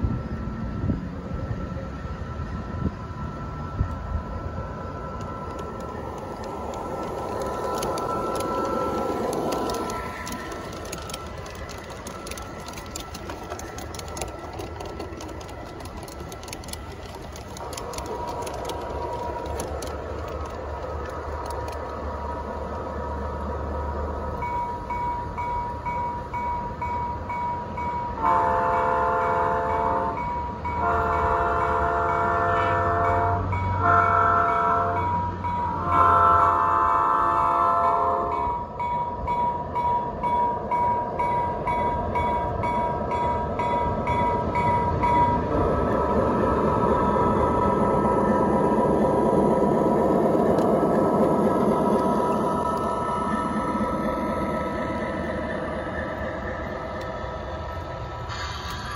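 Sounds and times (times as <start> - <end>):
low engine rumble: 0.0 - 27.9
model train cars clicking: 4.8 - 58.9
model locomotive horn: 28.2 - 38.6.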